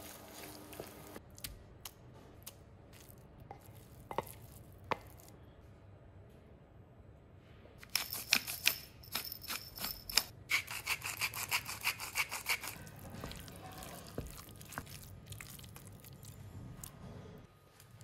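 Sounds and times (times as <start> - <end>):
spoon stirring moist filling: 0.0 - 5.3, 10.5 - 17.0
pepper mill grinding: 7.8 - 13.0
salt grinder grinding: 8.1 - 12.8.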